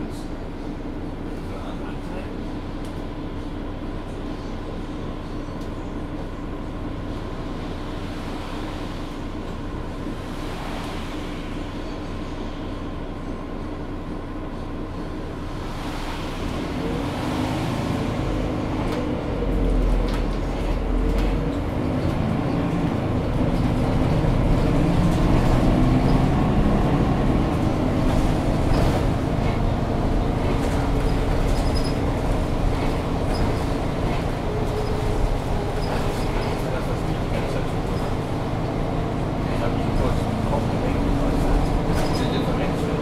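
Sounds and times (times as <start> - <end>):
bus diesel engine droning: 0.0 - 43.0.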